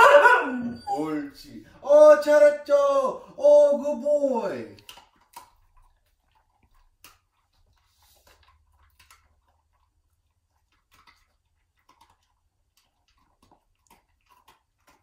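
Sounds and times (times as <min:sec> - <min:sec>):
dogs crunching treats: 0:03.2 - 0:15.0.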